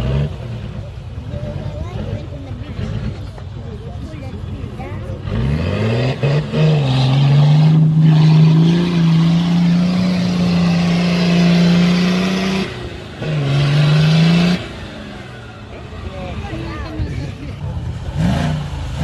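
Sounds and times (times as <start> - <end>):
suv engine revving hard: 5.1 - 16.8, 17.6 - 19.0.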